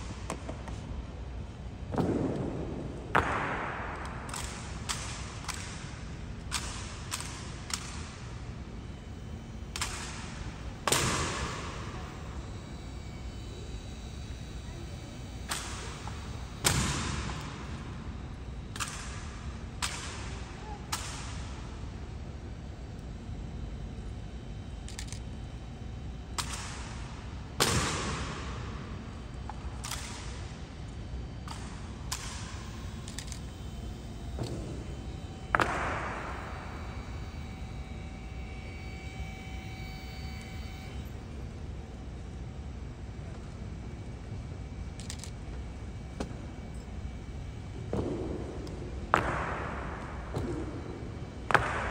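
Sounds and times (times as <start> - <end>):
rifles slapped and caught: 0.0 - 0.8, 1.9 - 8.4, 9.7 - 12.0, 15.4 - 17.8, 18.7 - 21.7, 24.9 - 25.2, 26.3 - 28.8, 29.4 - 30.6, 31.4 - 37.5, 47.8 - 51.9.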